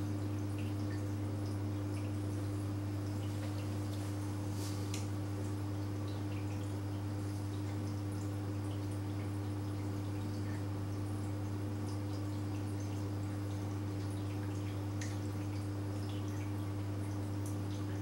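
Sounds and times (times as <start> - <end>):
low electrical hum: 0.0 - 18.0
water dripping and trickling: 0.0 - 18.0.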